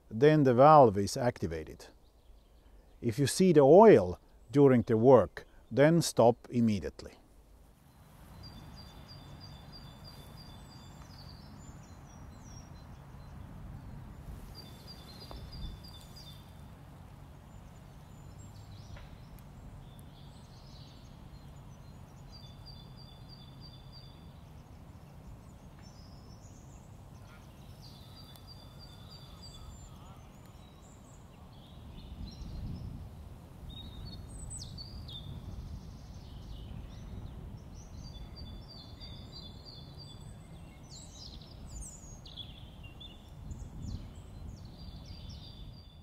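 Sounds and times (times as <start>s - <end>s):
songbird trilling: 7.9s - 16.6s, 17.6s - 32.8s.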